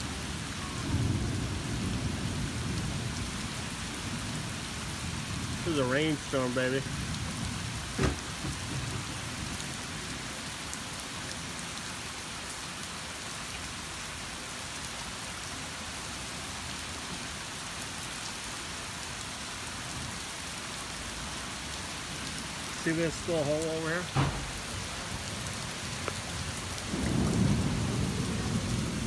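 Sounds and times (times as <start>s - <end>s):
heavy rain on pavement: 0.0s - 29.0s
sharp knock: 8.0s - 8.6s.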